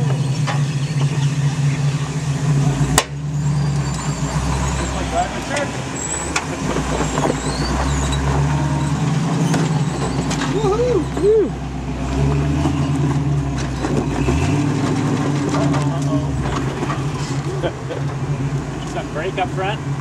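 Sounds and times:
off-road vehicle engine under load: 0.0 - 20.0
short squeaks: 3.2 - 11.5, 12.3 - 15.1.

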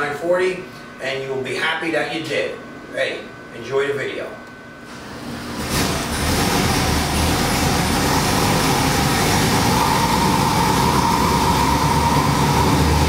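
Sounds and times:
engine running at raised idle: 5.2 - 13.0.

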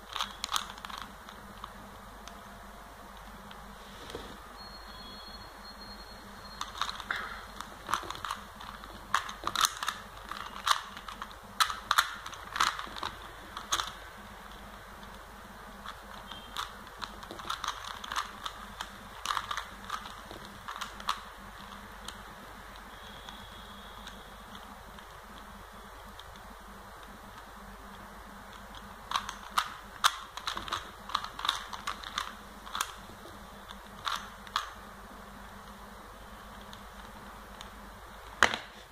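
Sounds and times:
plastic puzzle cube clicking: 0.0 - 2.4, 6.6 - 15.2, 15.8 - 23.4, 26.1 - 34.8.

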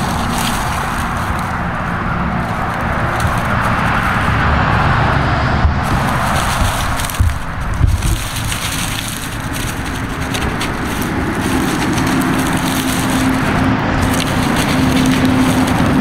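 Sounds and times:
dry leaves rustling and crackling: 0.0 - 16.0
steady low rumble: 0.0 - 16.0.

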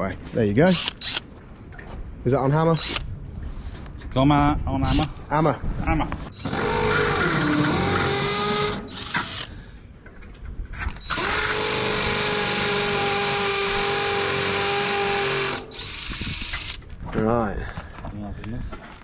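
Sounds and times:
hammer drill drilling concrete: 6.4 - 9.5, 11.0 - 16.8.

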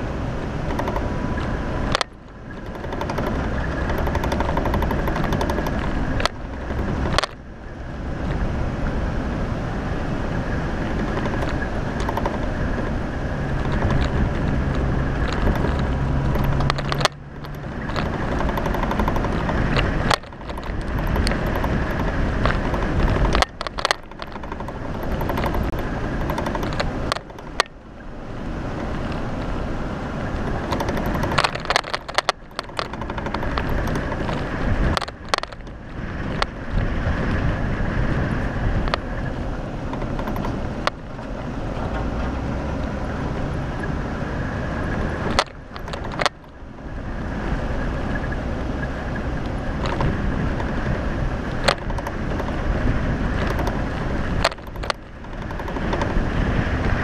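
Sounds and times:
car engine running: 0.0 - 57.0
knocks and rattles: 0.6 - 7.4, 10.8 - 27.8, 30.2 - 36.5, 39.8 - 42.3, 44.8 - 46.5, 49.2 - 57.0.

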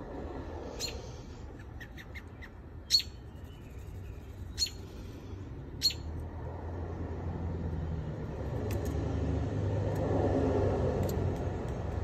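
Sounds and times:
bird chirps: 0.8 - 5.0, 5.8 - 6.1.

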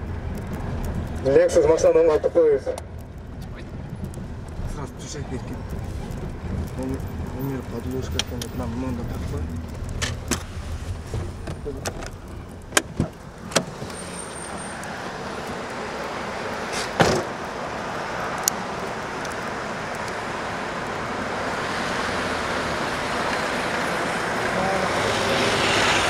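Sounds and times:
street traffic noise: 0.0 - 26.0
car door clicks: 11.4 - 13.9, 16.8 - 17.3
car door thump: 16.9 - 17.3.

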